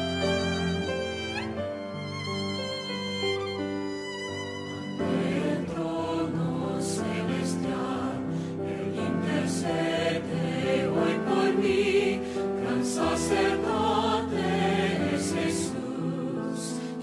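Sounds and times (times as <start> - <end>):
instrumental accompaniment: 0.0 - 6.2
vocal group singing a hymn: 5.0 - 17.0.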